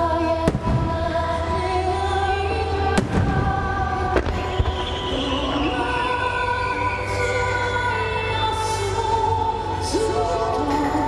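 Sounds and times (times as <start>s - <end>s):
music: 0.0s - 11.0s
fireworks booming: 0.5s - 1.2s.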